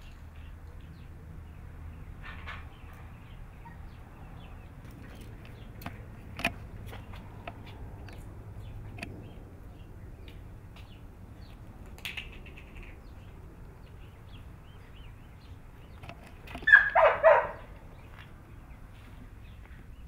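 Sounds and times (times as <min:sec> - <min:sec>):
puppy yipping: 0:16.6 - 0:17.7.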